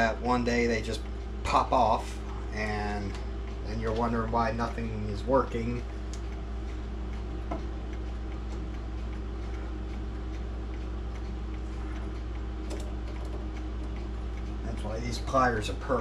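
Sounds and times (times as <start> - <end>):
low steady hum: 0.0 - 16.0
mechanical clock ticking: 0.0 - 16.0.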